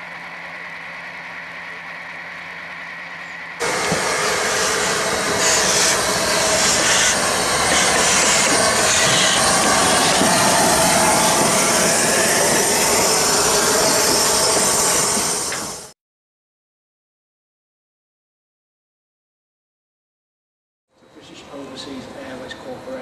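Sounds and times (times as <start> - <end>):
steam locomotive hissing steam: 0.6 - 16.0.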